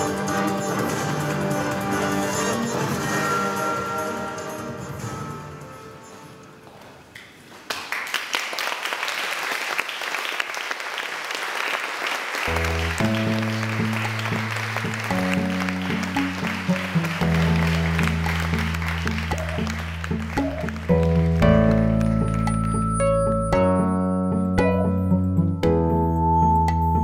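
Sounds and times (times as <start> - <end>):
audience applause: 7.5 - 21.8
music with low held chords: 12.5 - 27.0.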